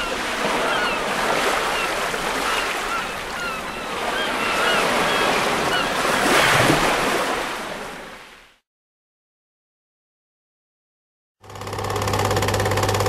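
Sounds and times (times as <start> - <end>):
ocean surf washing in: 0.0 - 8.3.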